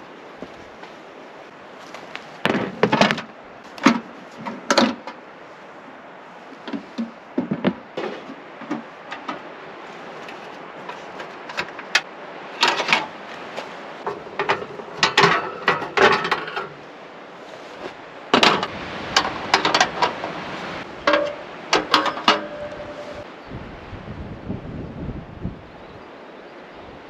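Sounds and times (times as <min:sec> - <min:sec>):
steady background hiss: 0:00.0 - 0:27.0
brief ringing tone: 0:22.5 - 0:23.2.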